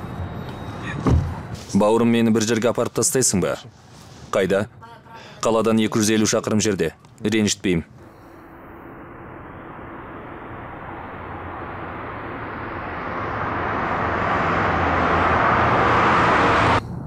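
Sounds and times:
car engine hum: 8.0 - 17.0.

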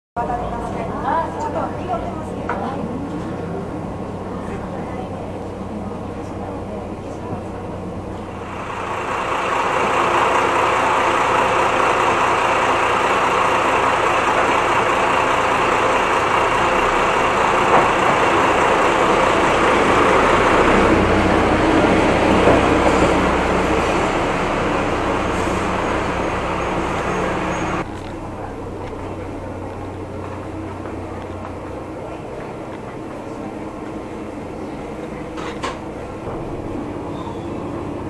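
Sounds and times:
diesel railcar engine and wheels: 0.2 - 38.0.

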